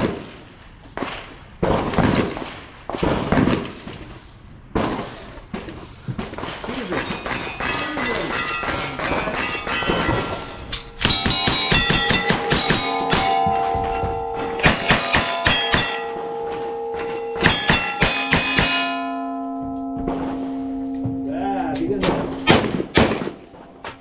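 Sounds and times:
rifle shots: 1.0 - 4.0, 22.0 - 23.7
steel plates ringing: 6.7 - 23.8.

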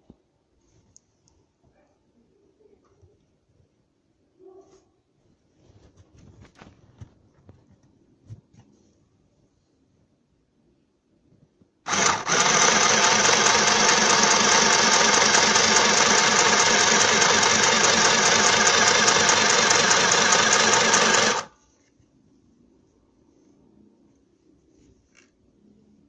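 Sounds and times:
sewing machine stitching: 11.9 - 21.5.

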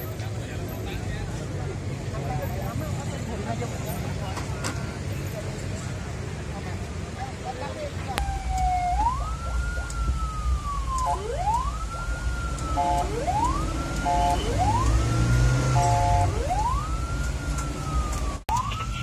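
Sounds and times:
engine and road rumble: 0.0 - 19.0
ambulance siren wailing: 8.1 - 19.0.

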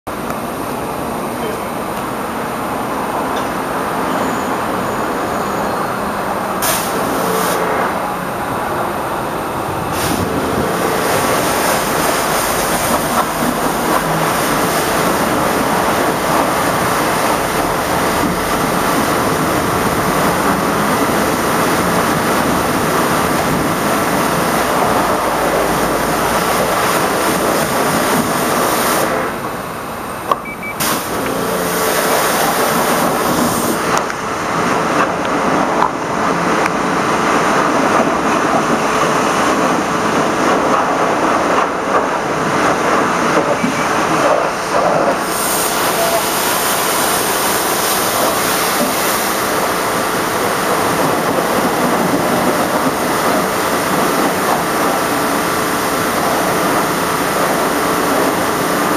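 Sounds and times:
pressure washer water spray: 6.6 - 7.8, 9.9 - 18.2, 24.1 - 29.4, 30.7 - 33.9, 44.7 - 50.2.

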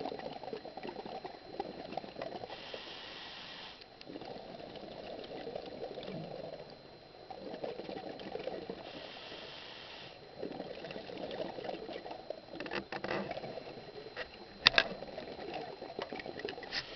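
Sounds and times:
bubbly gurgling exhalation: 0.0 - 2.7, 4.1 - 9.5, 10.2 - 16.9
scuba regulator breathing underwater: 2.4 - 6.5, 8.7 - 12.0
hissing inhalation: 2.5 - 3.8.

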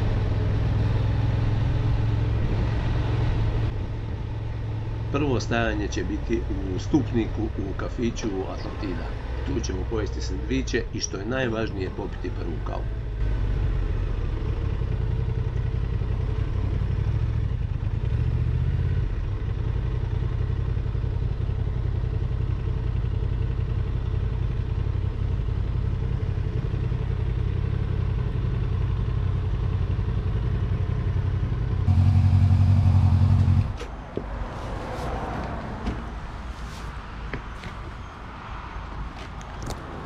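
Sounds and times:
motorcycle engine running: 12.1 - 33.8.

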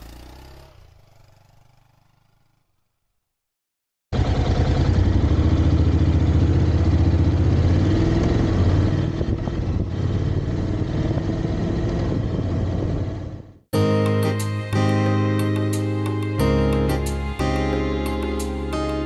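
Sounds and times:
motorcycle engine running: 0.0 - 3.2, 4.2 - 13.6.

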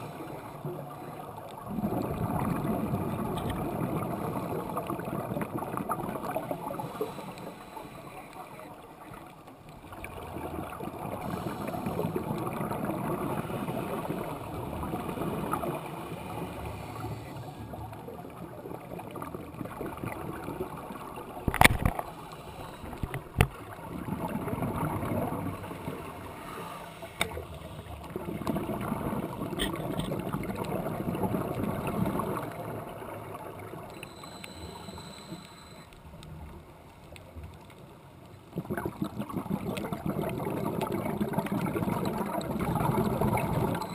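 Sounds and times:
exhaled bubbles underwater: 0.0 - 7.3, 8.7 - 26.3, 27.3 - 35.8, 38.5 - 43.9
diver breathing through regulator: 6.7 - 8.5, 11.2 - 12.2, 15.8 - 17.9, 22.1 - 23.2, 25.8 - 28.0.

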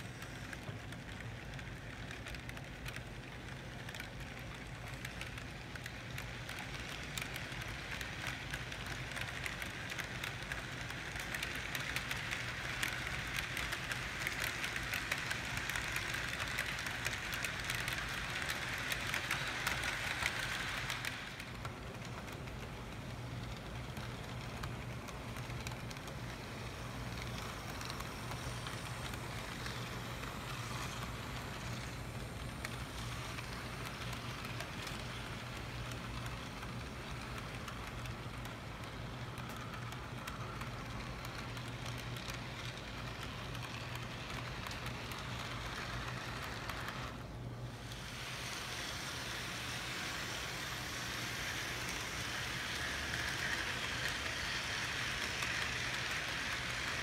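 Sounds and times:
model train wheels rattling: 0.0 - 57.0.

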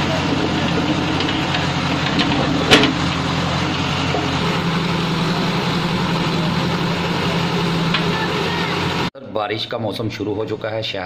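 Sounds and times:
engine idling: 0.0 - 9.1.

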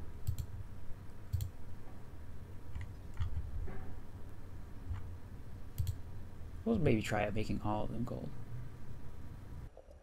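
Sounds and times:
low steady hum: 0.0 - 10.0
computer mouse clicking: 0.2 - 0.6, 1.3 - 1.5, 2.7 - 3.5, 4.8 - 5.1, 5.7 - 6.0.

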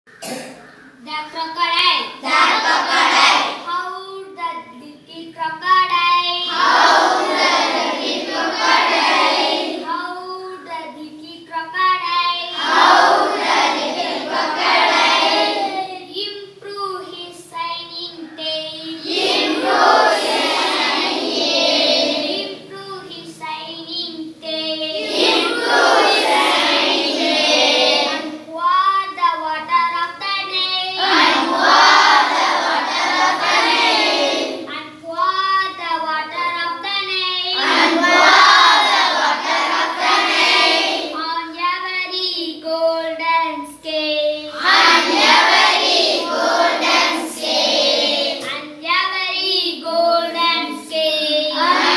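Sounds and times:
boy singing a line: 1.0 - 6.7, 9.6 - 12.6, 14.8 - 20.8, 22.3 - 26.9, 27.8 - 32.2, 34.4 - 39.2, 41.0 - 45.5, 48.3 - 51.9
class of boys singing together: 2.2 - 3.7, 6.4 - 10.7, 12.4 - 16.0, 18.3 - 22.8, 24.4 - 28.4, 30.4 - 34.8, 35.7 - 41.6, 43.9 - 48.6, 49.7 - 51.9.

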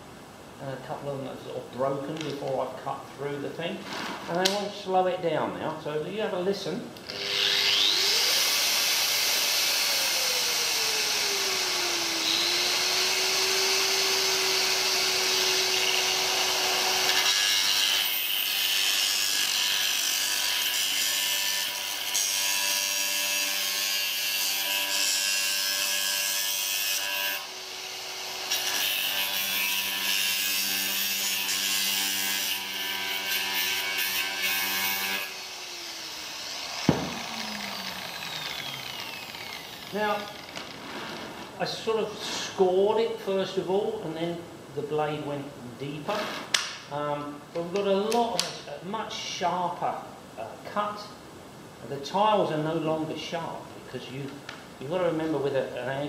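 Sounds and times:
angle grinder whine: 7.1 - 15.2, 34.9 - 41.5.

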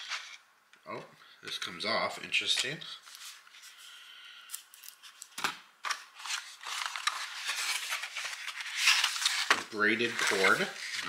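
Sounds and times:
cardboard rustling and scraping: 6.2 - 11.0.

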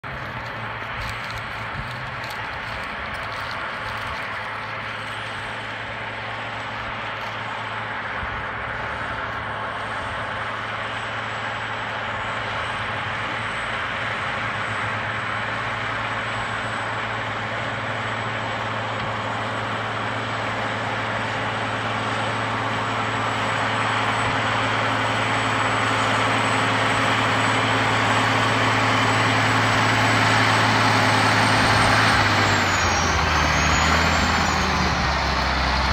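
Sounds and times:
tractor diesel engine under load: 0.0 - 35.9.

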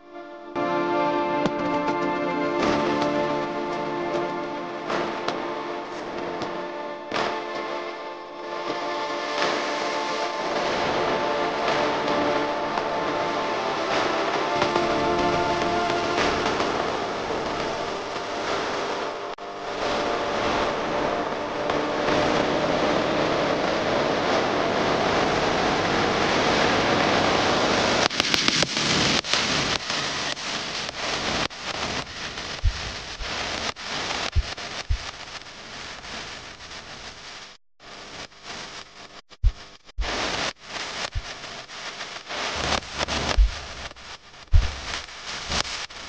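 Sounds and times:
choppy crackling noise: 0.0 - 46.0
jet engine running: 0.6 - 26.3.

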